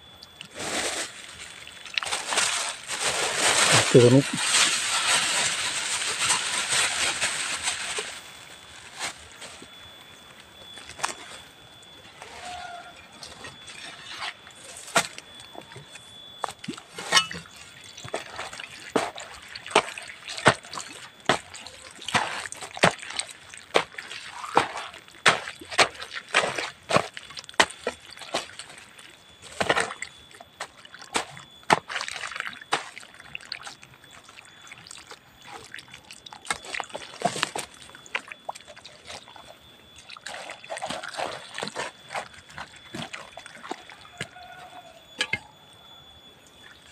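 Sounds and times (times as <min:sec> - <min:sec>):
wet squelches: 0:00.2 - 0:46.9
hoe chopping wet soil: 0:21.3 - 0:28.5, 0:29.5 - 0:30.0.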